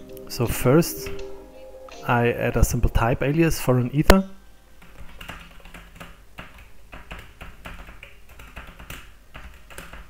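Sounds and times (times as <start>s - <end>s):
computer keyboard typing: 4.8s - 10.0s.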